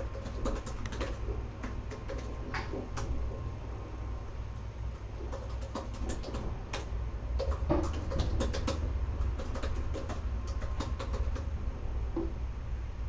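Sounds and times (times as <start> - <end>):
sharp clicks and light taps: 0.0 - 3.2, 5.2 - 11.5
steady low hum: 0.0 - 13.0.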